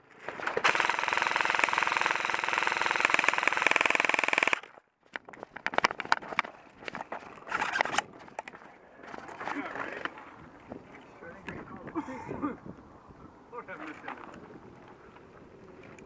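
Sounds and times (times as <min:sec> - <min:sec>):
airsoft rifle full-auto burst: 0:00.6 - 0:04.7.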